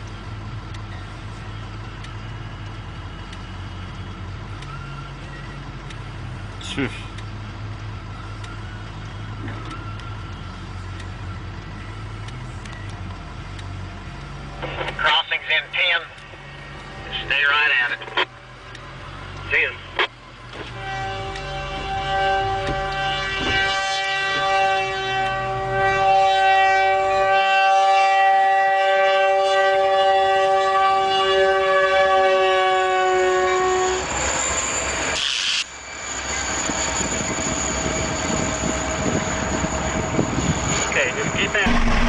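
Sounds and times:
engine droning: 0:00.0 - 0:23.2, 0:39.1 - 0:42.0
locomotive air horn chord: 0:20.7 - 0:34.1, 0:41.6 - 0:42.0
low rumble: 0:41.6 - 0:42.0.

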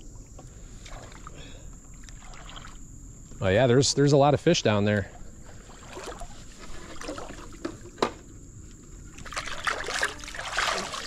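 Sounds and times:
creek water trickling: 0:00.6 - 0:03.0, 0:04.7 - 0:11.0.

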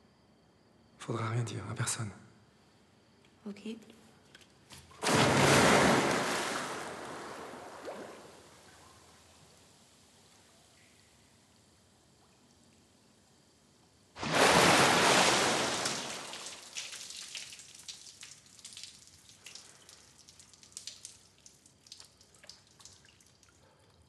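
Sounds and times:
big splash of pool water: 0:05.0 - 0:08.9, 0:14.2 - 0:19.8
water dripping and splattering: 0:14.3 - 0:24.0.

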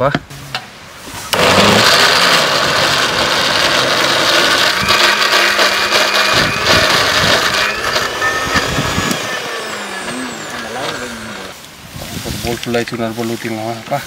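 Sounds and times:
mixer grinder motor running: 0:01.3 - 0:11.6.

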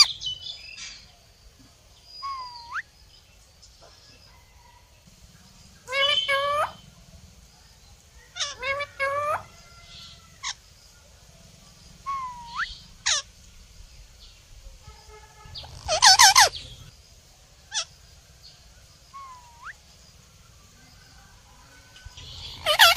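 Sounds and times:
parakeets calling: 0:00.0 - 0:00.9, 0:04.6 - 0:10.8, 0:11.4 - 0:13.6, 0:15.4 - 0:16.9, 0:22.2 - 0:22.9.

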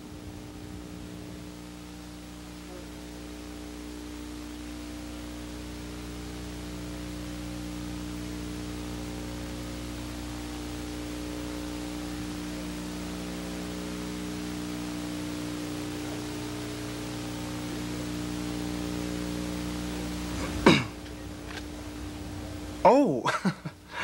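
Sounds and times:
videotape hiss and hum: 0:00.0 - 0:24.0.

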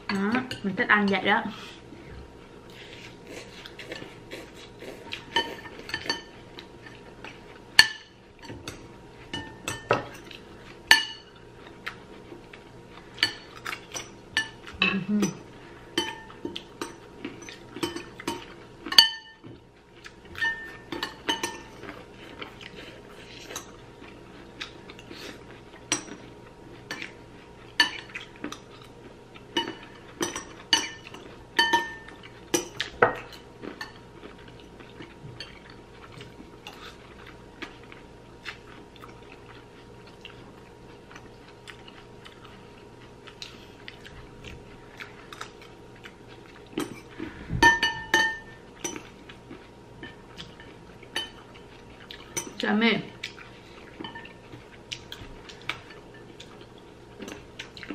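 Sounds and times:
chewing: 0:02.7 - 0:07.6, 0:19.5 - 0:31.4, 0:32.1 - 0:47.4, 0:48.8 - 0:52.6, 0:53.2 - 0:57.9
cutlery clinking on ceramic bowls: 0:05.3 - 0:07.0, 0:07.8 - 0:11.4, 0:16.0 - 0:19.6, 0:20.3 - 0:22.0, 0:29.5 - 0:34.0, 0:46.8 - 0:49.2, 0:50.0 - 0:52.6, 0:54.0 - 0:54.4.

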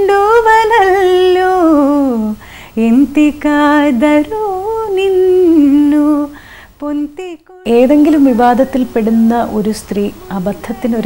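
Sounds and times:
woman singing unaccompanied: 0:00.0 - 0:11.0
woman breathing: 0:02.4 - 0:02.8, 0:06.3 - 0:06.8.

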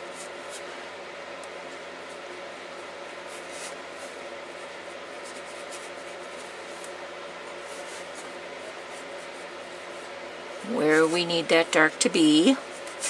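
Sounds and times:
steady background hum: 0:00.0 - 0:13.0
brush dabbing paint on paper: 0:03.1 - 0:13.0.

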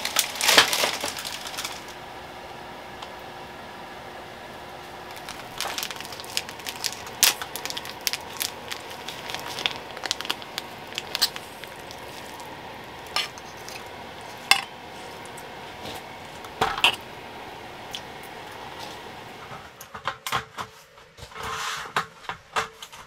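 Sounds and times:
paper packet crackling: 0:00.0 - 0:02.0, 0:04.8 - 0:16.6
pan clinking on steel bowl: 0:14.5 - 0:14.8.

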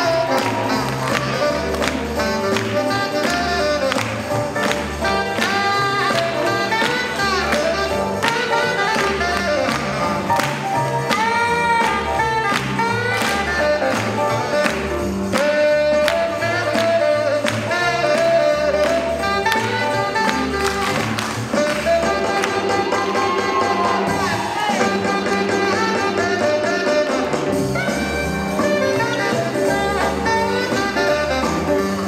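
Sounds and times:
up-tempo swing jazz: 0:00.0 - 0:32.0.

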